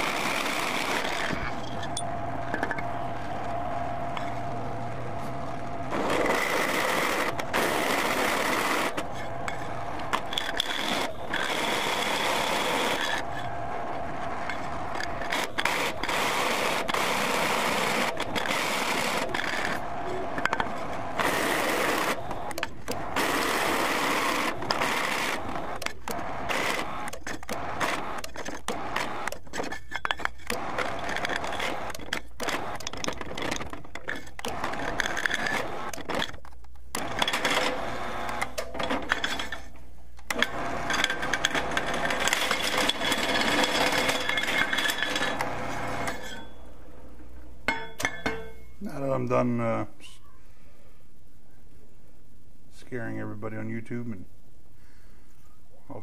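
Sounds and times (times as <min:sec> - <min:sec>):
milling machine motor running: 0:00.0 - 0:29.4, 0:30.5 - 0:36.2, 0:36.9 - 0:39.5, 0:40.3 - 0:46.4
thin whine: 0:00.0 - 0:29.4.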